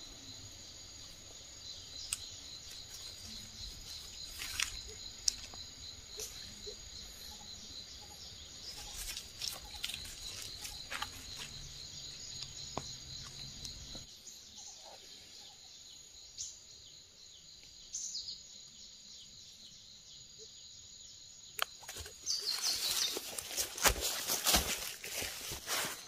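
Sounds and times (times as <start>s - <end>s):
high-pitched insect chorus: 0.0s - 26.0s
dry leaves crackling: 2.7s - 5.6s, 8.7s - 11.7s, 21.8s - 26.0s.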